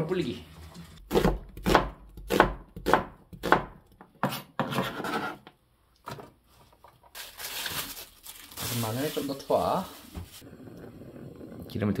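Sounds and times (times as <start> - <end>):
knife slicing onion on board: 1.1 - 5.2
plastic bag crinkling: 7.1 - 10.4.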